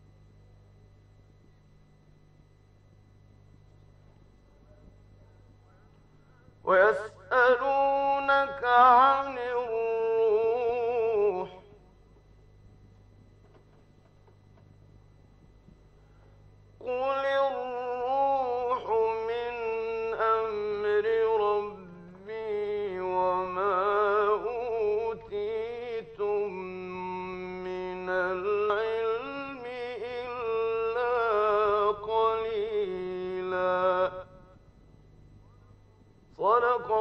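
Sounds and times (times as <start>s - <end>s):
steady low hum: 0.0s - 37.0s
man chanting melodically: 4.6s - 11.9s, 16.8s - 34.6s, 35.4s - 37.0s.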